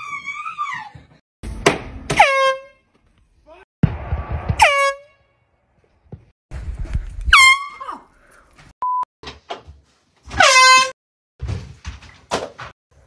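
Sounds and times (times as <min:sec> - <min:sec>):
knocks and thumps: 0:03.8 - 0:04.7
air horn blasts: 0:10.4 - 0:10.9.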